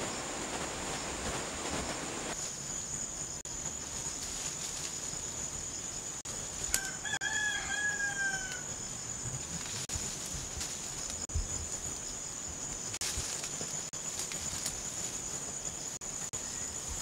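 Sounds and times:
rooster crowing: 6.7s - 8.8s.

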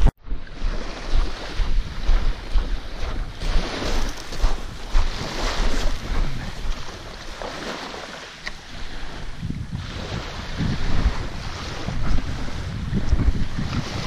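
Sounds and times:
gentle surf: 0.0s - 14.0s
wind buffeting microphone: 0.0s - 14.0s
footsteps crunching on pebbles: 1.1s - 7.7s.

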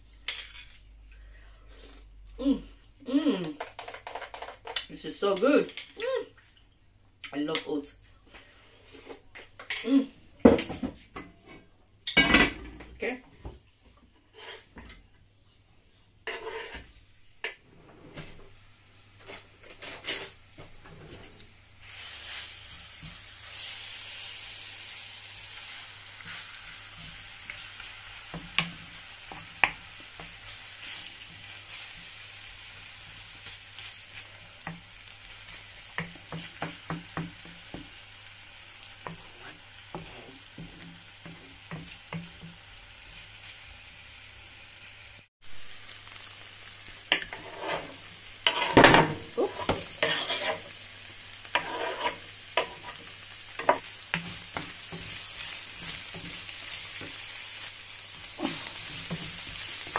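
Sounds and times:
wooden spatula scraping pan: 14.2s - 14.8s, 16.3s - 18.4s, 39.0s - 42.5s, 47.1s - 50.7s, 51.4s - 57.2s
chicken sizzling in oil: 21.4s - 59.9s.

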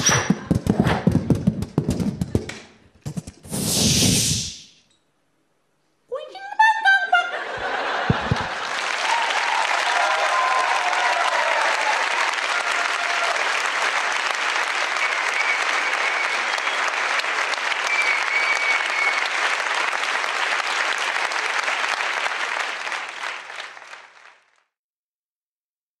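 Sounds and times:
audience applauding: 7.5s - 24.7s.

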